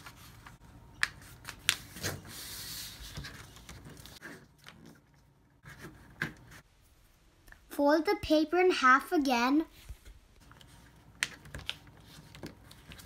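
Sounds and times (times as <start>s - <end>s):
paper rustling: 0.0s - 6.6s, 9.8s - 13.0s
paper being folded: 10.4s - 13.0s.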